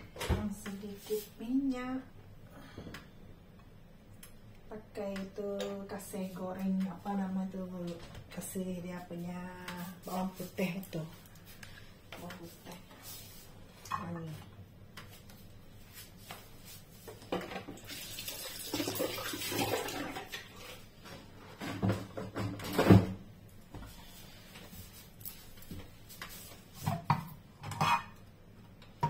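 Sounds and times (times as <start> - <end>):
kitchen tap running: 17.6 - 20.8
kitchenware clattering: 26.9 - 28.2.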